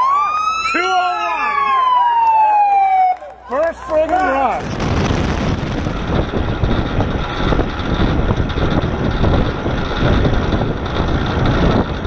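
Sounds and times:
motorcycle low rumble: 4.6s - 12.0s
wind buffeting microphone: 4.6s - 12.0s.

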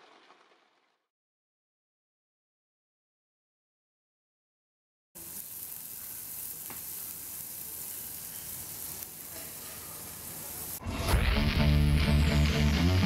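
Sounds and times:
meat sizzling on a grill plate: 5.2s - 10.8s.

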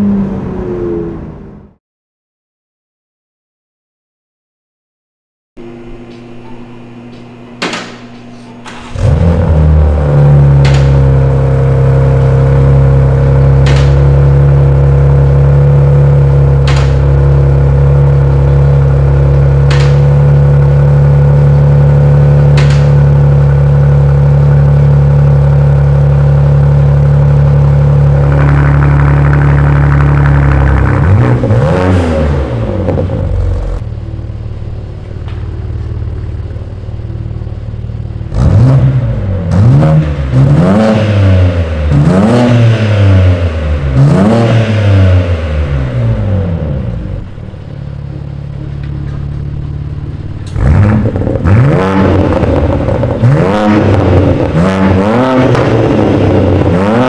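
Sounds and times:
car engine idling and revving: 0.0s - 1.8s, 8.7s - 57.0s.

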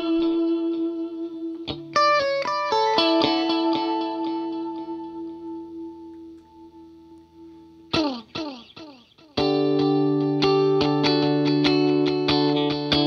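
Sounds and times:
electric guitar notes: 0.0s - 13.0s.

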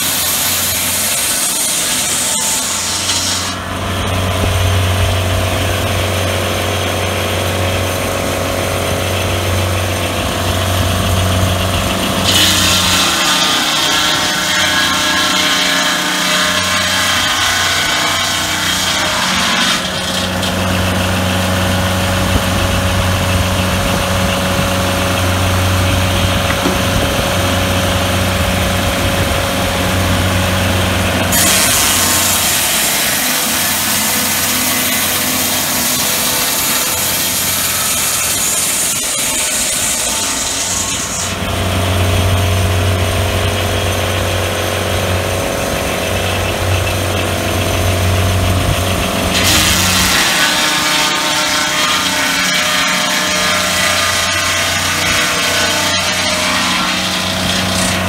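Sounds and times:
circular saw cutting log: 0.0s - 58.0s
engine humming: 20.5s - 31.3s.

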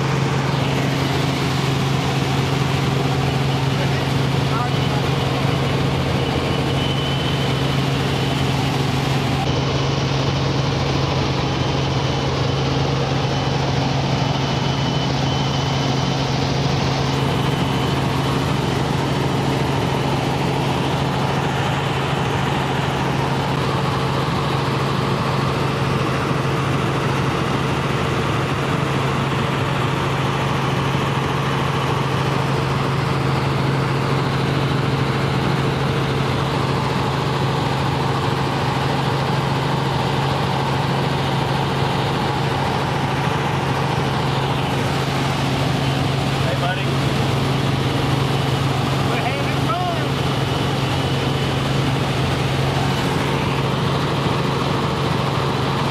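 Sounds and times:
faint high whine: 0.0s - 23.6s
helicopter engine and rotor drone: 0.0s - 55.9s.

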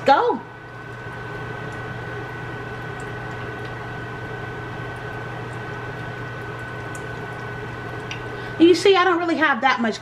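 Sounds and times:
electrical hum: 0.0s - 10.0s
oil spattering ticks: 4.9s - 8.3s.

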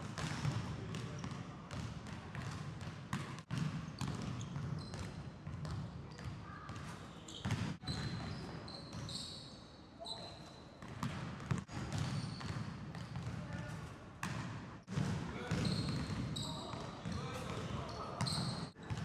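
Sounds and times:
sneaker squeaks: 0.2s - 1.8s, 3.2s - 19.0s
basketball bouncing on hardwood floor: 0.2s - 6.3s, 10.8s - 13.6s.

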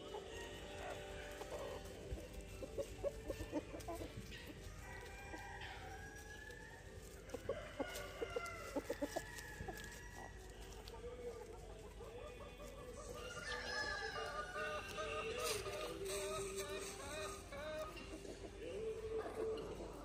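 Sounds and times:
chickens clucking: 0.0s - 20.0s
rooster crowing: 4.7s - 10.5s, 13.1s - 17.9s.

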